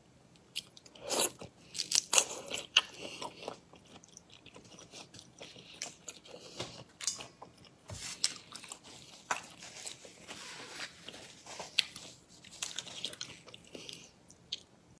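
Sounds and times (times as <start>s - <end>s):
crunchy chewing: 0.5s - 14.7s
paper tissue rustling: 7.9s - 12.9s.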